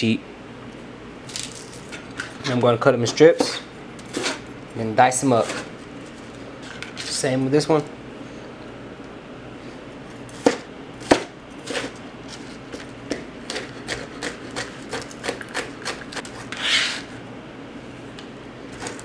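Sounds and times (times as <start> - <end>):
knife blade scraping: 2.4 - 4.4, 5.4 - 5.7, 15.6 - 17.1
knife chopping on cutting mat: 10.4 - 11.9.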